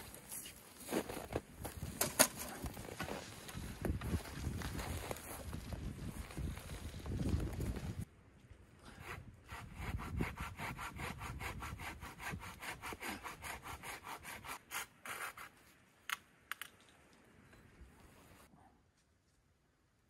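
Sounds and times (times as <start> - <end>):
hand saw cutting wood: 9.0 - 15.6.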